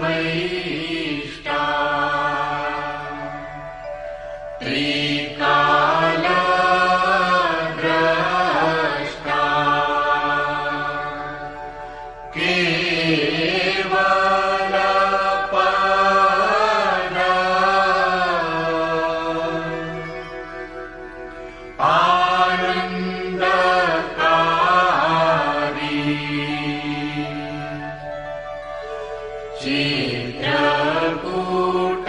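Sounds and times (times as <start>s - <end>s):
person singing chant: 0.0s - 32.0s.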